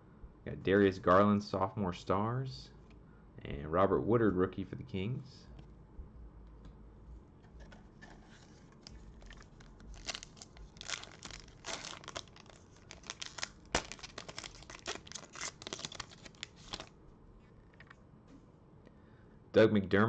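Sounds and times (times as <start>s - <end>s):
foil wrapper crinkling and tearing: 8.7s - 16.9s.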